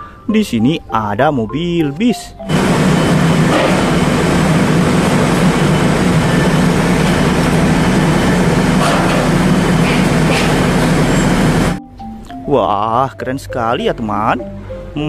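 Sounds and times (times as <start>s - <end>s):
bus engine humming: 2.5s - 11.8s.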